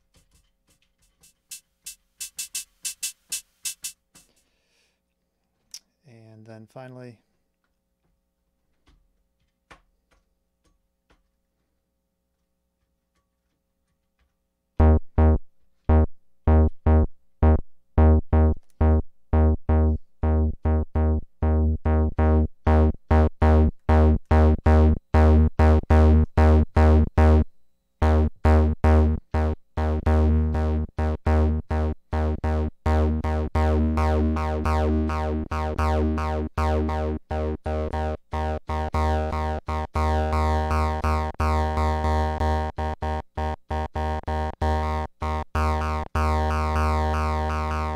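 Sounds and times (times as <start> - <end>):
analog bass synth sequence: 14.8 - 47.9.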